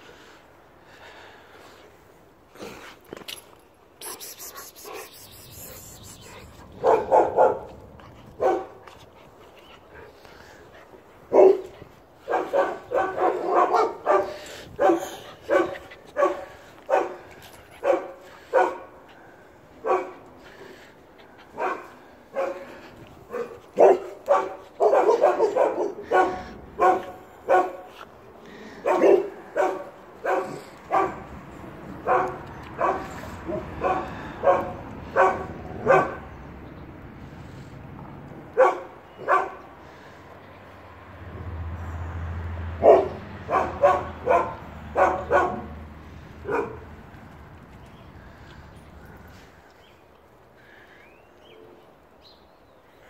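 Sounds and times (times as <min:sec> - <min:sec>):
puppy barking: 0:04.0 - 0:07.8, 0:08.4 - 0:08.8, 0:11.3 - 0:11.7, 0:12.3 - 0:17.2, 0:17.8 - 0:18.9, 0:19.8 - 0:20.2, 0:21.5 - 0:22.7, 0:23.3 - 0:27.9, 0:28.8 - 0:31.3, 0:32.0 - 0:36.3, 0:38.6 - 0:39.6, 0:42.8 - 0:45.7, 0:46.4 - 0:46.9.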